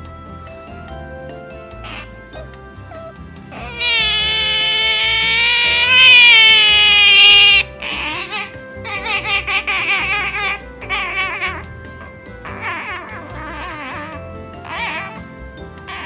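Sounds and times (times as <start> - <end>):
background music: 0.0 - 16.0
otter whining call: 1.7 - 16.0
otter squeaks: 2.9 - 16.0.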